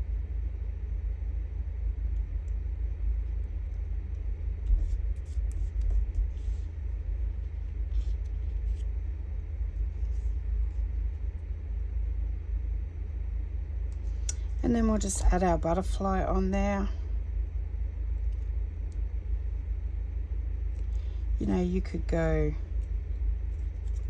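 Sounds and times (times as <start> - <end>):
low rumble: 0.0 - 24.0.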